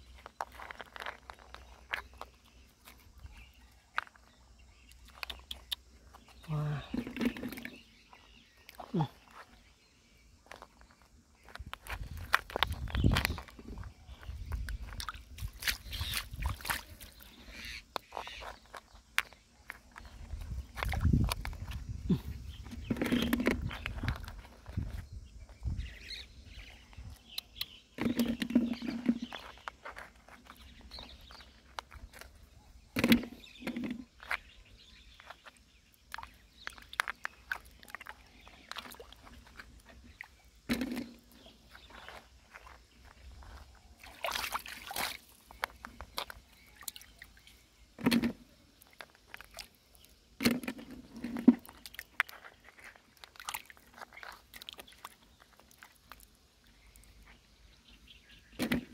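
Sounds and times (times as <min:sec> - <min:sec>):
clicks and knocks of digging: 0:00.0 - 0:04.3, 0:10.4 - 0:17.3, 0:17.9 - 0:25.0, 0:26.9 - 0:47.1, 0:47.9 - 0:57.4
water sloshing: 0:14.5 - 0:25.0, 0:36.1 - 0:57.0
water sloshing splashes: 0:14.8 - 0:17.4, 0:43.5 - 0:47.4.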